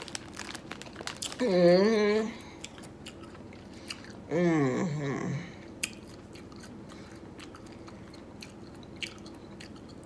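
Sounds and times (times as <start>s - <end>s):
woman humming: 1.4s - 2.5s, 4.3s - 5.6s
chewing with wet mouth clicks: 2.6s - 4.2s, 5.8s - 10.0s.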